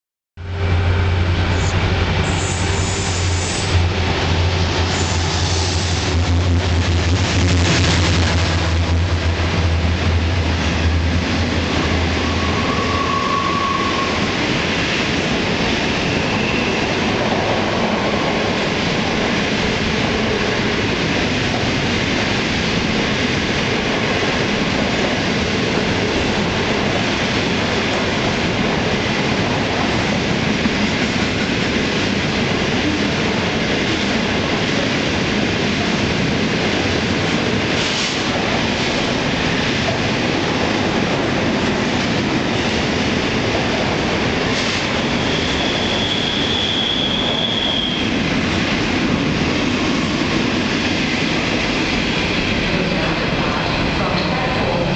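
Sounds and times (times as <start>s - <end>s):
locomotive engines droning: 0.4s - 7.3s
high wheel squeal: 12.1s - 14.3s, 45.0s - 48.2s.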